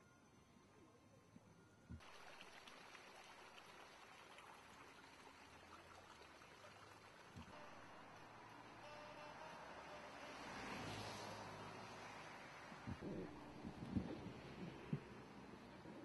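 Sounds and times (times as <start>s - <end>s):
stream running over rocks: 2.0s - 16.0s
soft low thumps: 12.9s - 15.2s.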